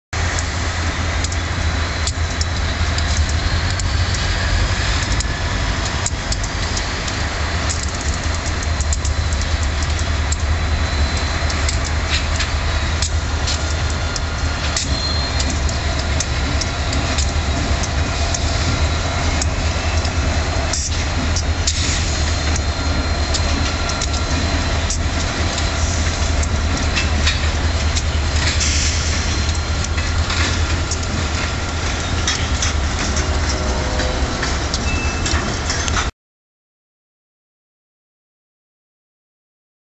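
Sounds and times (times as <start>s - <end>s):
locomotive engines droning: 0.2s - 36.1s
wheels clicking over rail joints: 0.2s - 36.1s
high wheel squeal: 14.0s - 36.0s.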